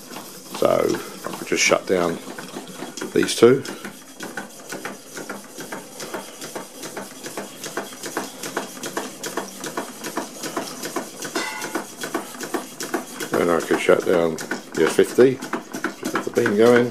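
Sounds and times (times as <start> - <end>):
model steam engines clicking: 0.0 - 16.9.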